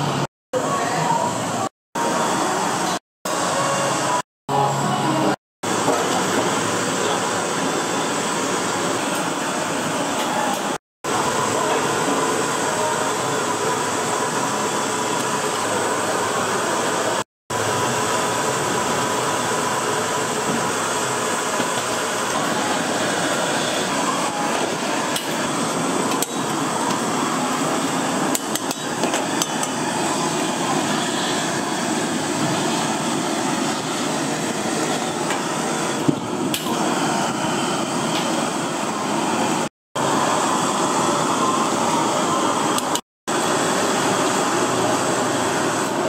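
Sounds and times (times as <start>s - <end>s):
gas stove burner rushing: 5.2s - 46.0s.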